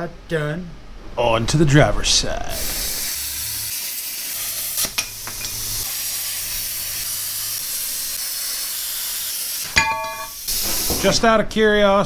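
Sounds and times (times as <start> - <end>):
plasma cutter hissing: 2.5 - 11.1.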